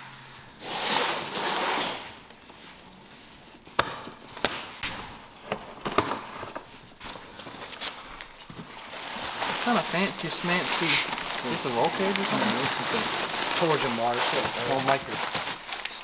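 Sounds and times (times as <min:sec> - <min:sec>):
packing tape tearing: 0:00.6 - 0:02.4, 0:05.7 - 0:16.0
cardboard rustling: 0:05.3 - 0:16.0.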